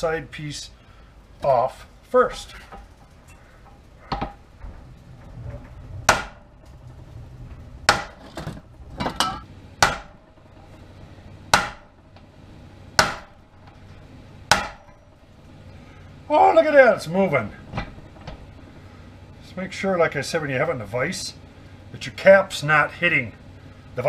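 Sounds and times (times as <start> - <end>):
hammer striking metal: 6.1 - 6.6, 7.9 - 12.3, 13.0 - 15.3.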